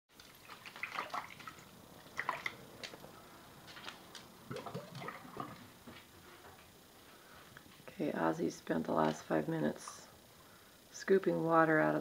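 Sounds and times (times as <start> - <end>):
water splashing in a plastic dish: 0.2 - 3.0, 4.5 - 5.7.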